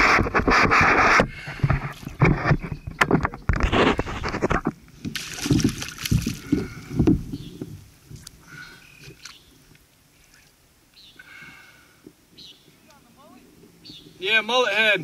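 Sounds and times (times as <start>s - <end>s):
water sloshing around kayak: 0.0s - 10.6s.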